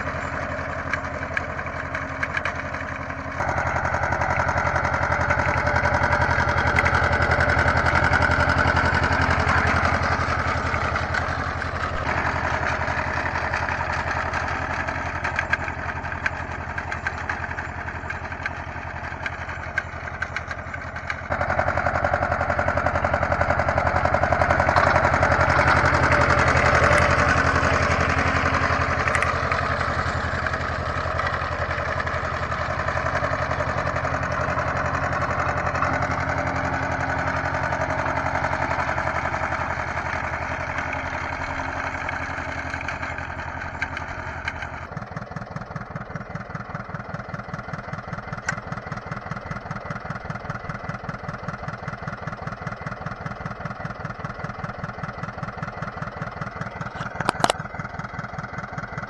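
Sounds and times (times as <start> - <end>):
tractor engine running: 0.0 - 59.0
mower cutter bar clattering: 56.5 - 57.8.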